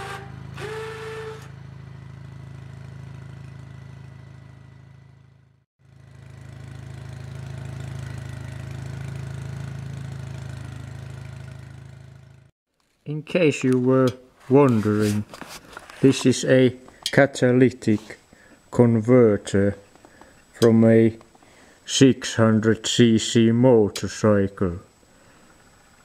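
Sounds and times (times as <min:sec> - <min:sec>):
short whistling tone: 0:00.0 - 0:01.5
lawn tractor engine hum: 0:00.0 - 0:12.5.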